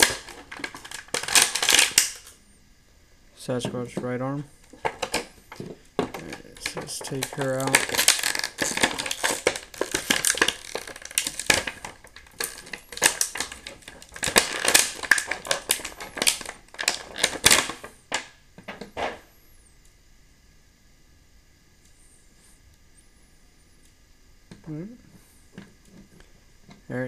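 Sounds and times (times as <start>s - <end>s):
plastic bag crinkling: 0.0s - 2.3s, 4.7s - 18.3s.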